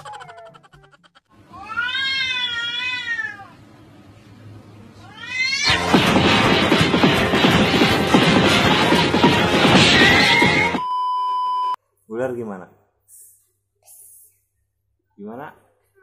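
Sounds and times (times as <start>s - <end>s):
cats screeching in a fight: 1.5s - 3.5s, 5.0s - 5.8s
cat rising cry: 1.5s - 3.6s, 5.0s - 5.8s
cat yowling: 1.5s - 3.6s, 5.0s - 5.8s.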